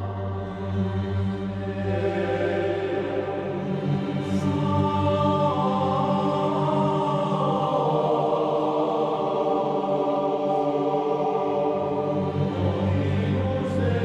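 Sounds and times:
choir chanting sustained chords: 0:00.0 - 0:14.0.

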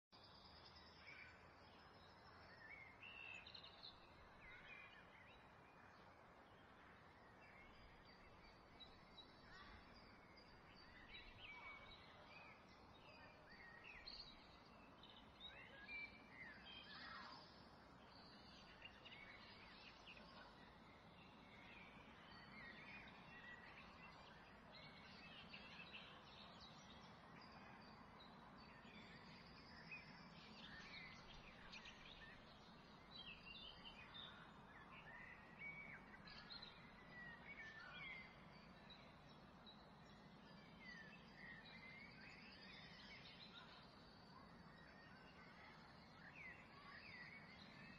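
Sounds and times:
faint background hiss: 0:00.2 - 0:47.9
faint bird chirps: 0:00.2 - 0:47.9.

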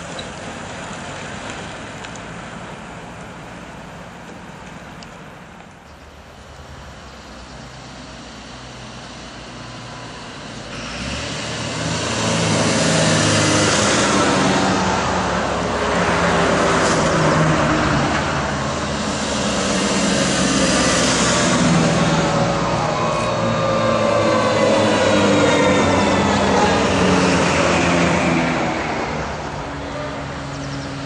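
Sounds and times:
diesel vehicles driving past: 0:00.0 - 0:31.0.

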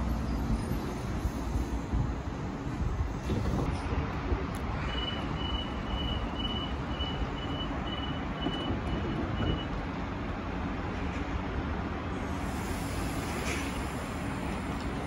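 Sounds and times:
train door warning beeps: 0:04.8 - 0:09.8.

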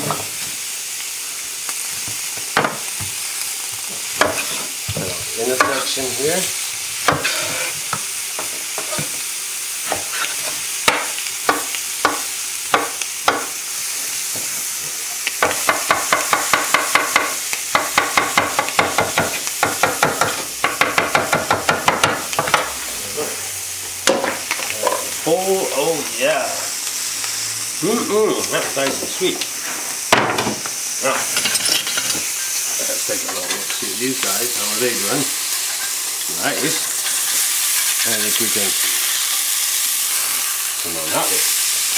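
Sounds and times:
fish searing in grill pan: 0:00.0 - 0:41.9
knife chopping on wooden board: 0:10.9 - 0:13.5, 0:15.4 - 0:22.6.

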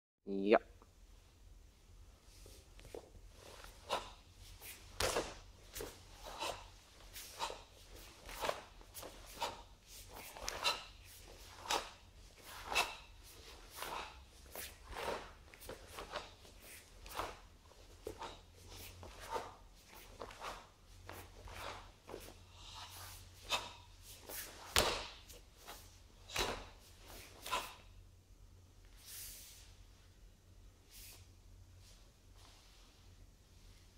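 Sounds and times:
bare feet sliding on floor: 0:02.2 - 0:27.8, 0:28.8 - 0:29.8
bare feet landing on floor: 0:04.9 - 0:05.4, 0:24.4 - 0:25.2.

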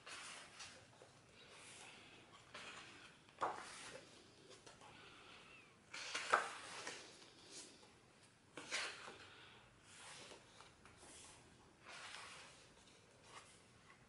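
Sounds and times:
book pages turning: 0:00.0 - 0:04.8, 0:05.9 - 0:07.9, 0:08.6 - 0:14.0.

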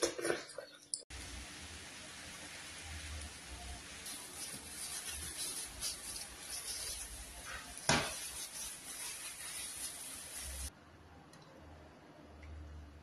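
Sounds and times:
plastic bag crinkling: 0:04.0 - 0:10.7.

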